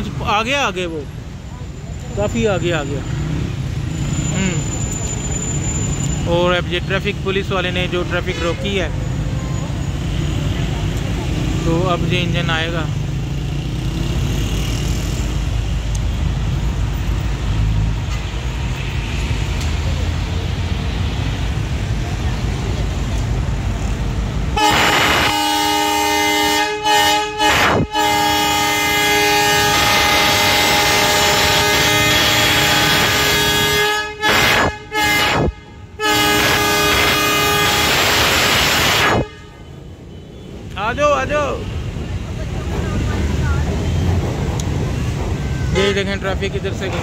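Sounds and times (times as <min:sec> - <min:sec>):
diesel locomotive engine rumble: 0:00.0 - 0:13.1, 0:14.4 - 0:47.0
street traffic noise: 0:00.0 - 0:47.0
locomotive air horn: 0:24.6 - 0:39.8.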